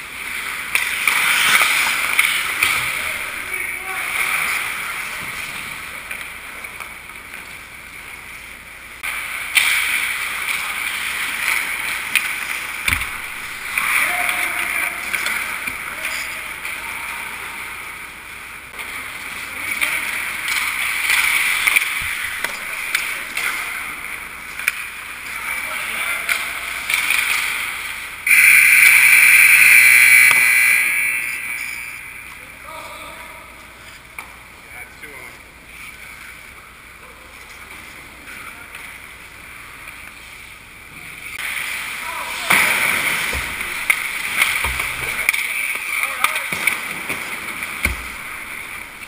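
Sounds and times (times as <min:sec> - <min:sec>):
hockey sticks and puck clacks: 0:00.1 - 0:08.2, 0:09.0 - 0:17.0, 0:18.7 - 0:28.1, 0:29.9 - 0:32.4, 0:41.4 - 0:49.0
ice skates scraping on ice: 0:00.2 - 0:02.9.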